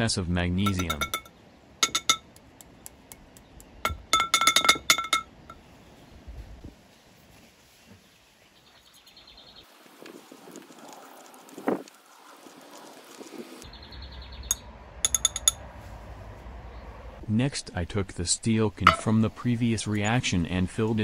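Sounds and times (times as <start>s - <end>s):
glass beakers clinking together: 0.7s - 2.4s, 3.9s - 5.4s, 15.1s - 15.6s, 18.9s - 19.1s.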